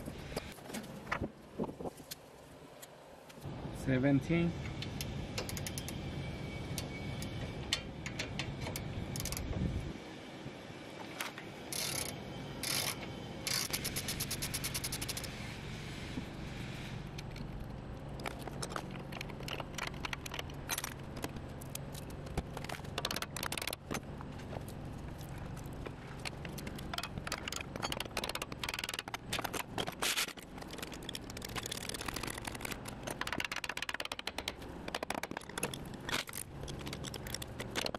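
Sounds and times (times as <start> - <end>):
hand tools clicking on metal: 25.8 - 37.9.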